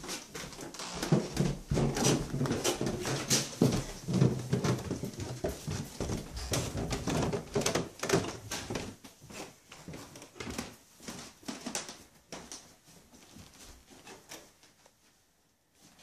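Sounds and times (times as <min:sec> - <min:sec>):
footsteps on wooden stairs: 0:00.0 - 0:14.4.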